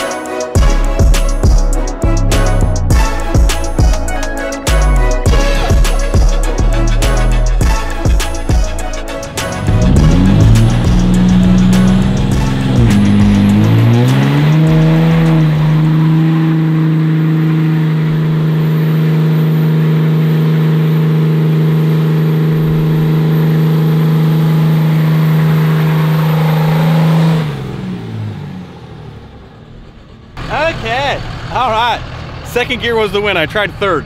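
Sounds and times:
truck engine revving: 0.0s - 34.0s.

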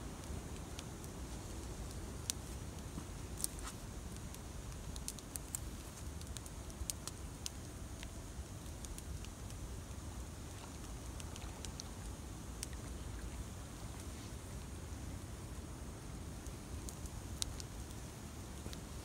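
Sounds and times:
campfire crackling and popping: 0.5s - 12.0s, 12.6s - 12.8s, 16.2s - 19.0s.

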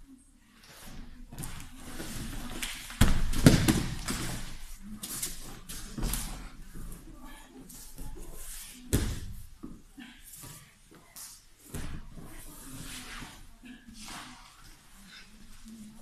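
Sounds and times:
bodies thudding on gym mat: 1.3s - 4.6s.

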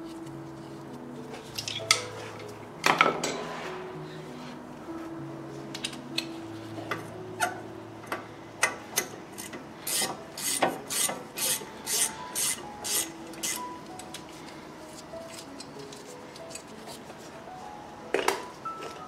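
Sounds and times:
hand tool scraping rust: 9.4s - 13.6s.

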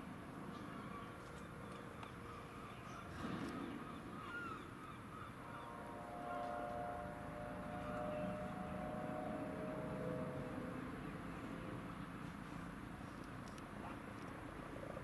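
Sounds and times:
distant helicopter drone: 0.1s - 15.0s
birds calling: 0.5s - 5.8s.

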